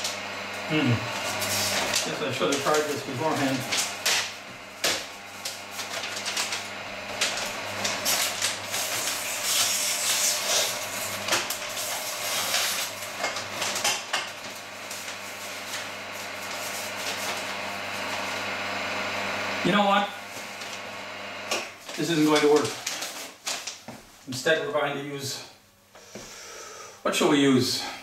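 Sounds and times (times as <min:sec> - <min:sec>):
meat slicer humming: 0:00.0 - 0:22.8
paper rustling and scraping: 0:00.9 - 0:18.4, 0:20.3 - 0:20.8, 0:21.7 - 0:24.2.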